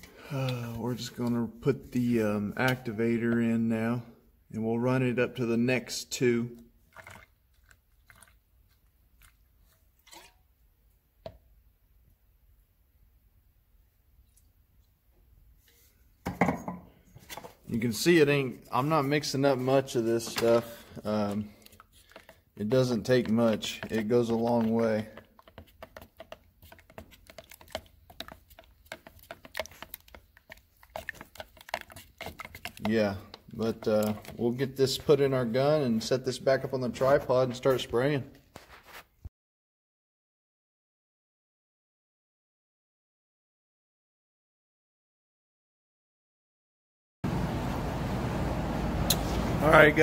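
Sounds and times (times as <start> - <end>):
stir stick scraping plastic cup: 0.4 - 3.5, 6.8 - 10.4, 17.2 - 39.1
liquid pouring into plastic cup: 6.8 - 10.3.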